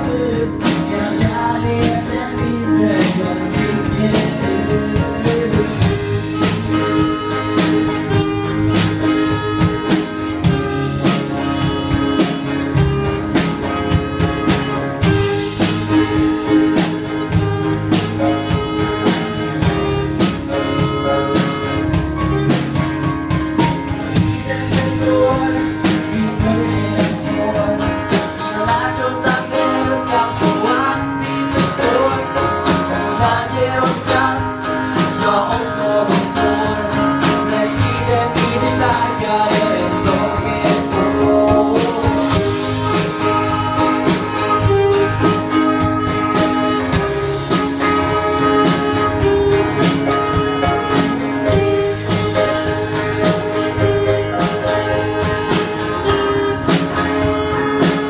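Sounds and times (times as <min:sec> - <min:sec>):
person singing: 0:00.0 - 0:23.2, 0:24.1 - 0:58.0
acoustic guitar: 0:00.0 - 0:58.0
drum kit beat: 0:00.0 - 0:58.0
keyboard: 0:00.0 - 0:58.0.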